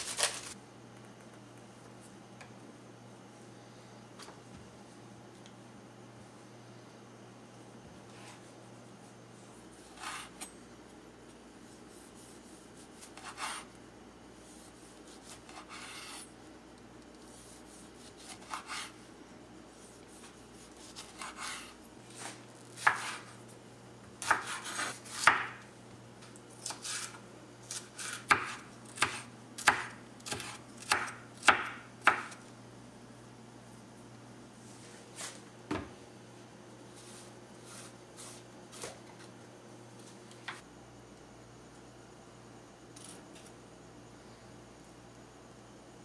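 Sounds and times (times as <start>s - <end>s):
knife chopping on board: 22.8s - 23.3s, 24.2s - 25.6s, 27.7s - 32.4s.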